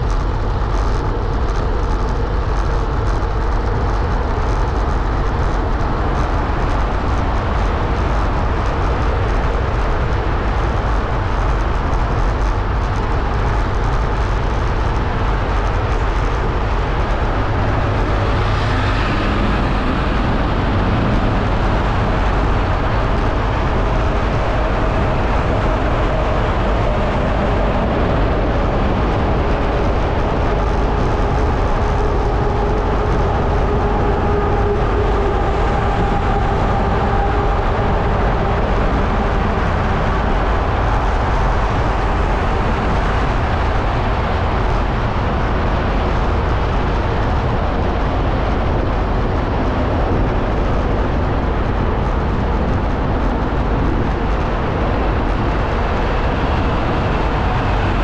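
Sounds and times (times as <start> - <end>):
faint engine tones: 0.0 - 58.0
wind on microphone: 0.0 - 58.0
echoing passing traffic: 16.1 - 44.5.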